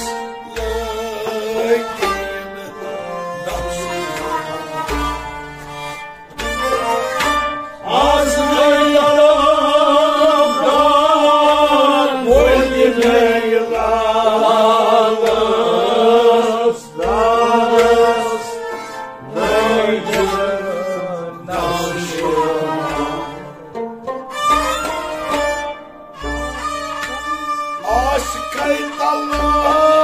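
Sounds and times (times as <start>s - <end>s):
string instruments: 0.0s - 30.0s
men singing together: 7.8s - 23.8s, 27.8s - 30.0s.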